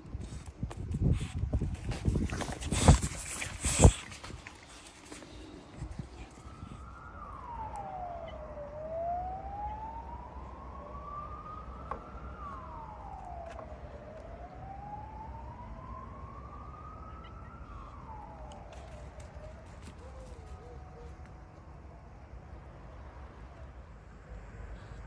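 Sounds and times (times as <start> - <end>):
siren wailing: 3.8 - 21.6.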